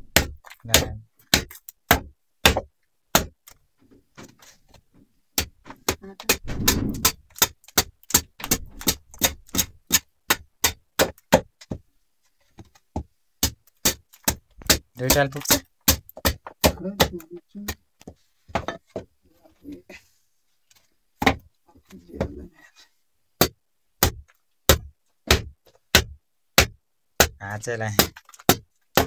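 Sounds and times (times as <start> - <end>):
blade chopping wooden stick: 0.1 - 3.3, 5.4 - 11.7, 13.4 - 17.8, 23.4 - 29.0.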